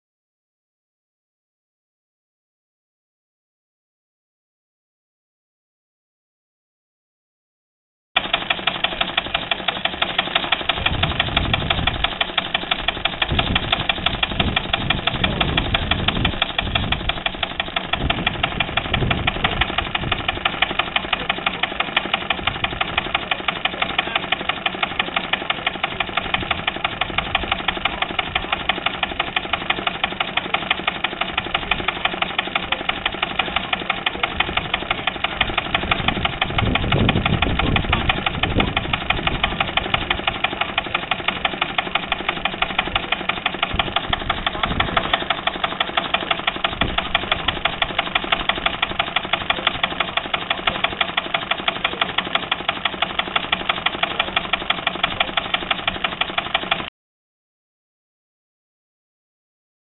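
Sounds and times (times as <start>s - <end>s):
power hacksaw knocking: 8.2s - 56.9s
stationary engine running: 8.2s - 56.9s.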